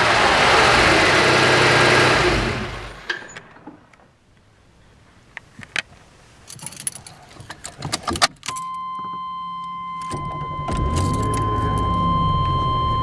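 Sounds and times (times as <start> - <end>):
car keys jangling: 6.4 - 9.2, 10.0 - 11.9
high warning tone: 8.5 - 13.0
car engine cranking and starting: 10.0 - 13.0.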